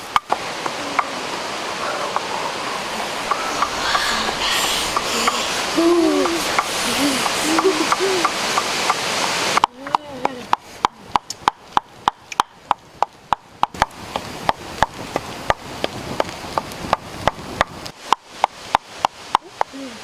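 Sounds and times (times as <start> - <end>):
rushing noise: 0.0 - 9.6.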